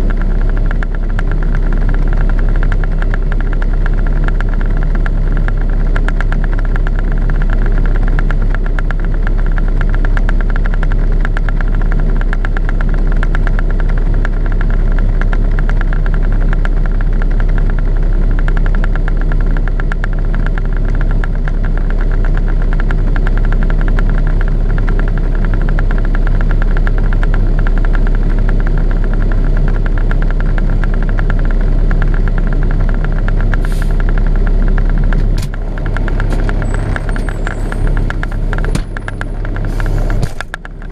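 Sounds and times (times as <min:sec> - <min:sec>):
diesel truck engine idling: 0:19.0 - 0:40.9
short hiss: 0:33.6 - 0:34.0.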